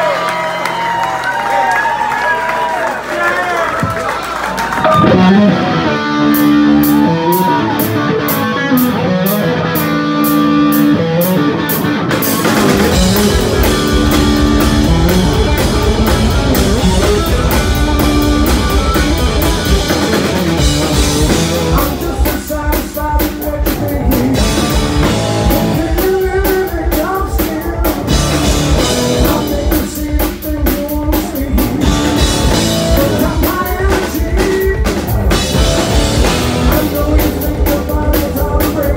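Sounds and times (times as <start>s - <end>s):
rock band playing: 0.0s - 2.2s, 3.6s - 38.9s
electric guitar sustained notes: 4.8s - 22.4s
man singing: 15.5s - 38.9s.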